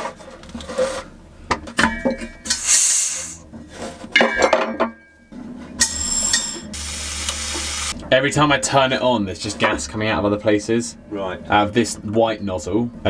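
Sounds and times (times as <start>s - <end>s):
gas hissing: 2.5s - 3.5s, 5.8s - 8.0s
metal gas fittings clinking: 5.8s - 6.7s.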